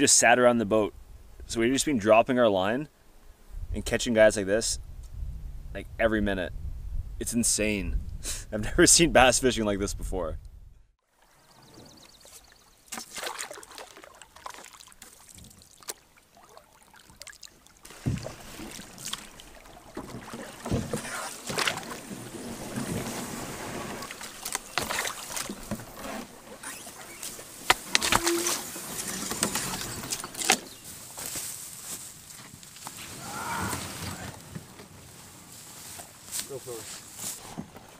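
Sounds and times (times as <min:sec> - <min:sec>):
paddle strokes and splashing: 0:11.0 - 0:37.9
knocks against canoe hull: 0:17.9 - 0:19.3, 0:19.9 - 0:22.0.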